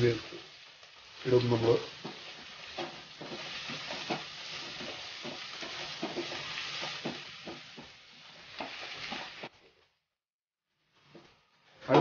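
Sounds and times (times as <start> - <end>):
onions sizzling in hot oil: 0.0 - 9.8, 10.7 - 12.0
wooden spatula scraping pan: 1.9 - 9.5.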